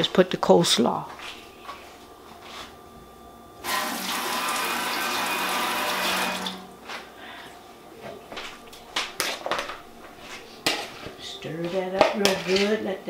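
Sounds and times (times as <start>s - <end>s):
water running: 3.6s - 6.8s.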